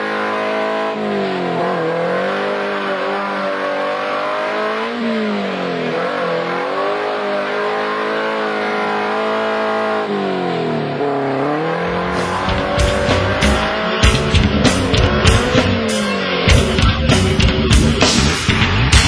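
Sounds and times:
engine revving under load: 0:00.0 - 0:19.0
heavy low rumble: 0:11.9 - 0:15.9.

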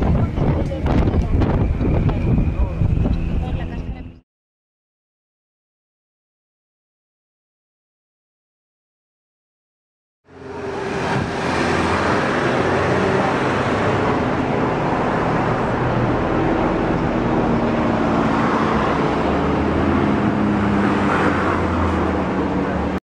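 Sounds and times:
propeller plane droning: 0:00.0 - 0:04.2, 0:10.3 - 0:23.0
steady rushing noise: 0:10.3 - 0:23.0.

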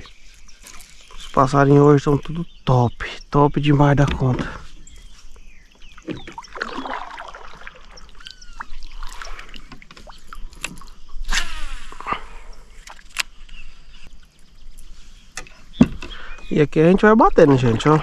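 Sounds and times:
birds chirping and calling: 0:00.0 - 0:18.0
water sloshing around a kayak: 0:04.5 - 0:11.3, 0:17.3 - 0:18.0.

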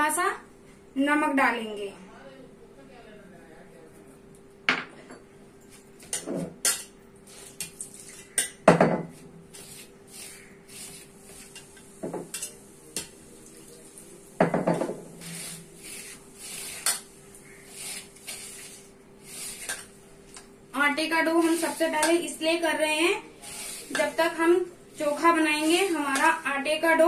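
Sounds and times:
flour scraping and rubbing: 0:09.5 - 0:11.6, 0:15.2 - 0:19.8, 0:23.4 - 0:24.3.

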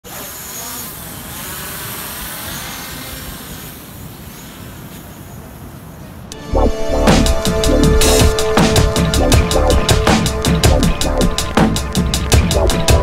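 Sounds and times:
drone propellers whirring: 0:06.3 - 0:13.0.

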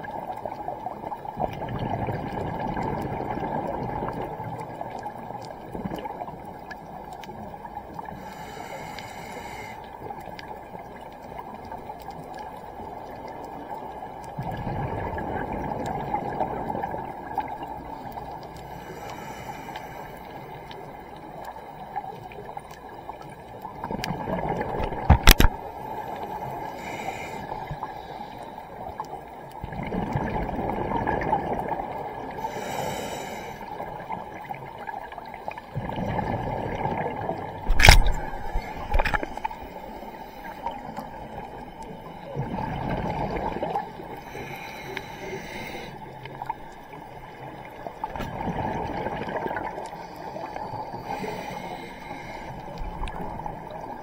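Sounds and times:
underwater regulator bubbles: 0:29.6 - 0:34.0, 0:35.6 - 0:54.0.

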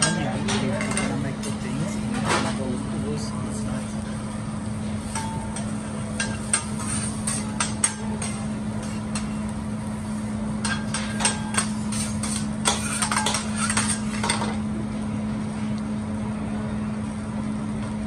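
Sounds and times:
steady low hum: 0:00.0 - 0:18.0
metal spatula scraping griddle: 0:05.0 - 0:09.4, 0:10.6 - 0:14.6.

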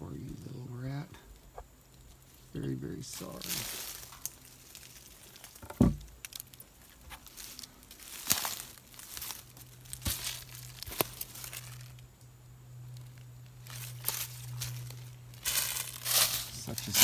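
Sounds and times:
dry leaves crunching: 0:02.0 - 0:12.1, 0:12.8 - 0:17.0
sharp thump: 0:05.6 - 0:06.1.

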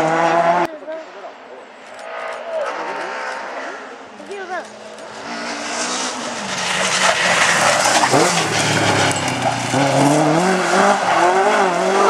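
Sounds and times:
rally car engine accelerating: 0:02.1 - 0:12.0.

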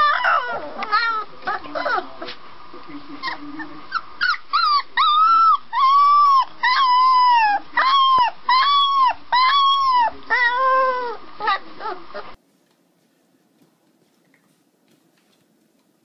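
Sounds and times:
puppy howling: 0:00.0 - 0:02.2, 0:04.2 - 0:12.4.

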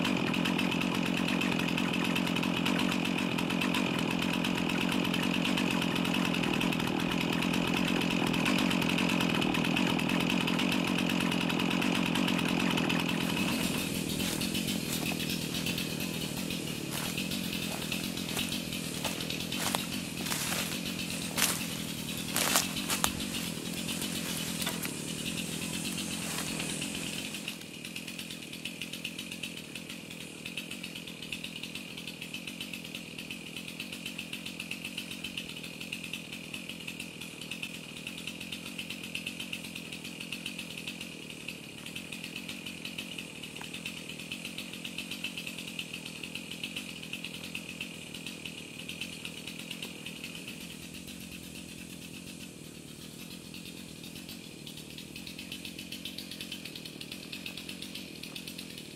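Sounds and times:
cicada chorus buzzing: 0:11.8 - 0:58.9
branches rustling: 0:12.4 - 0:27.7.

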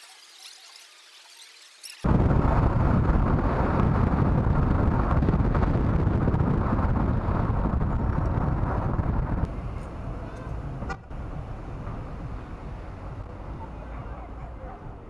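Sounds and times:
wind noise on microphone: 0:02.0 - 0:13.8
street traffic: 0:02.1 - 0:15.0.

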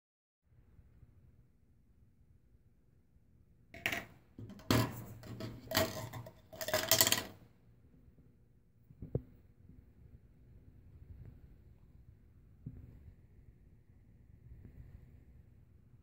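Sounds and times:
metal rattling on hard plastic: 0:03.8 - 0:07.4.

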